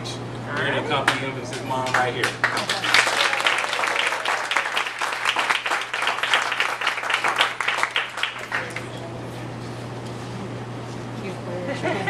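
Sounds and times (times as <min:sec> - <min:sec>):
people applauding: 0:01.0 - 0:09.0.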